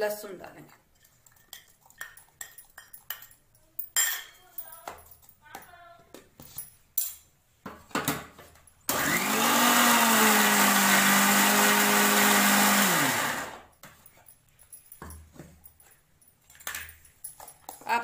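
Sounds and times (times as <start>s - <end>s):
mixer grinder motor whine: 8.9s - 13.6s.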